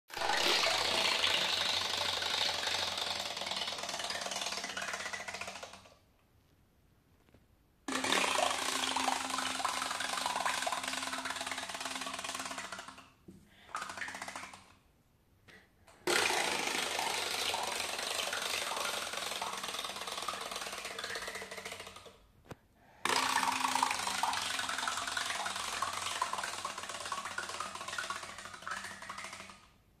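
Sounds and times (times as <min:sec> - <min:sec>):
clockwork toy motor buzzing: 0:00.1 - 0:05.9, 0:07.9 - 0:13.0, 0:16.0 - 0:22.1, 0:23.0 - 0:29.5
toy legs paddling in water: 0:00.1 - 0:05.9, 0:07.9 - 0:14.8, 0:16.0 - 0:22.2, 0:23.0 - 0:29.7.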